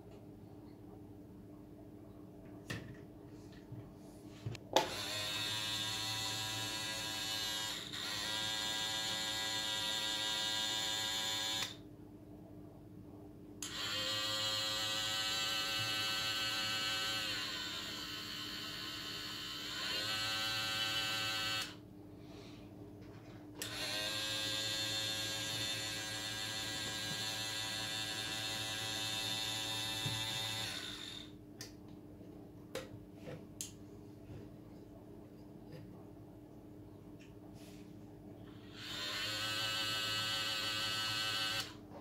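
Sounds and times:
small electric motor whining: 0:04.8 - 0:11.8, 0:13.6 - 0:21.8, 0:23.6 - 0:31.3, 0:38.5 - 0:41.8.

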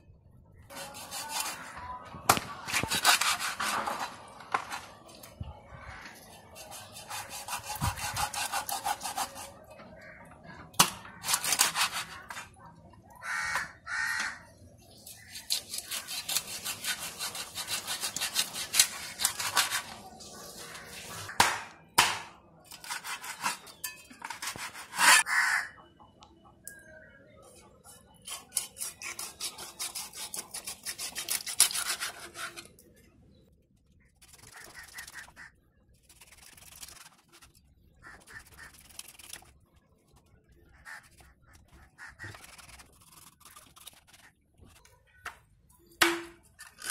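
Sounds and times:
cleaver rasping through fish skin: 0:28.3 - 0:32.5.

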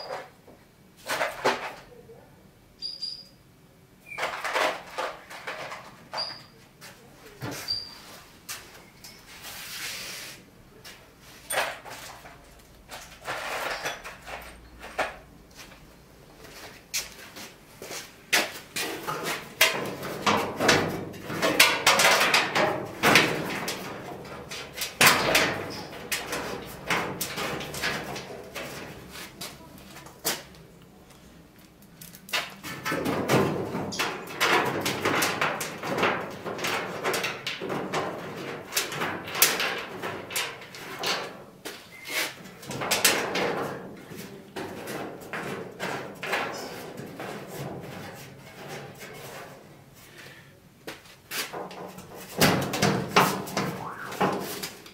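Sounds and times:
sheet scraping against metal: 0:51.4 - 0:54.9.

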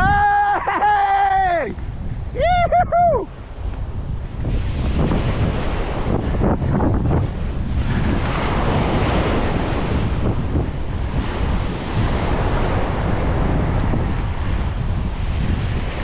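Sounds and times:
surf breaking on beach: 0:00.0 - 0:16.0
wind rumbling on microphone: 0:00.0 - 0:16.0.

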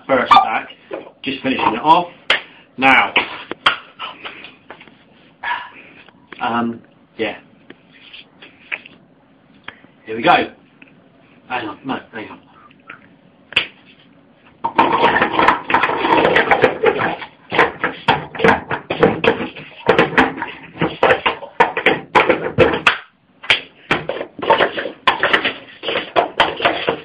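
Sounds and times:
plastic cups clattering: 0:14.6 - 0:23.0, 0:23.9 - 0:27.0.

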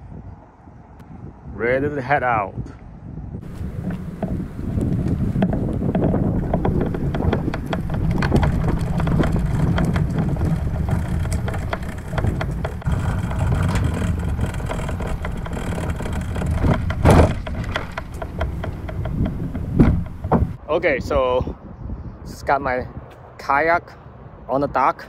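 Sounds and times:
hull and gear rattling: 0:03.4 - 0:20.6
kayak dragging rumble: 0:03.4 - 0:20.6
loud clunk: 0:05.4 - 0:20.6.

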